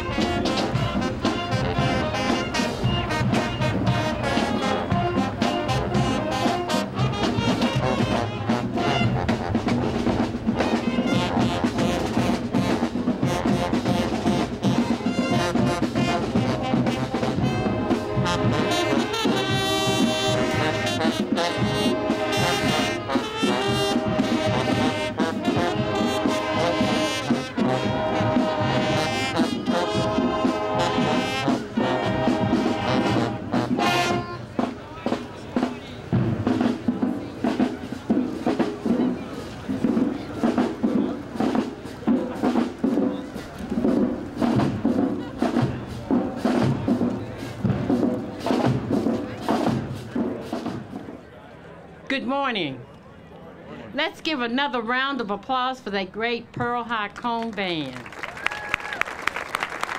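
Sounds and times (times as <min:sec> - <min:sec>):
brass playing repeated chords: 0:00.0 - 0:34.7
marching band playing: 0:00.0 - 0:53.0, 0:53.7 - 0:59.9.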